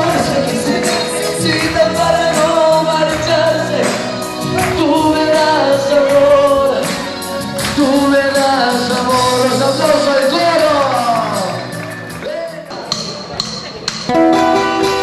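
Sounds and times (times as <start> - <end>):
person singing long notes: 0.0 - 11.6
live band playing: 0.0 - 15.0.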